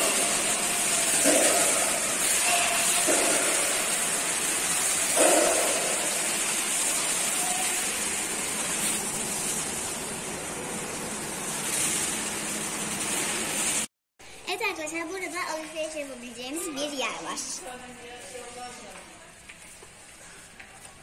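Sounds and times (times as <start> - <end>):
running water rushing: 0.0 - 10.6.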